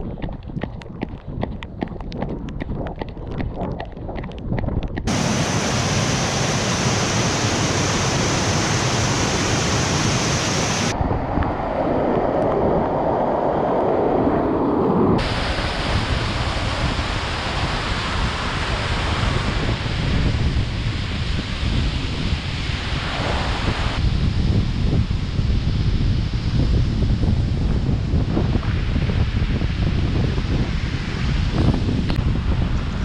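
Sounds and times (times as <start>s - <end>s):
waterfall rushing: 5.1s - 11.0s, 15.2s - 19.8s.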